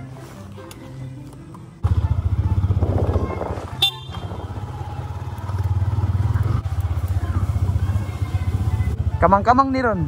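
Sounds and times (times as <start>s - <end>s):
scooter engine running: 1.8s - 9.4s.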